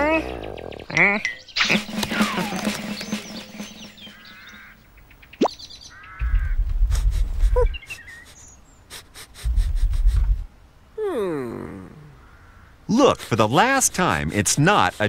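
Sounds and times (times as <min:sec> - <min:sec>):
warbling chirps: 0:01.6 - 0:05.6
low rumbles: 0:06.2 - 0:07.7.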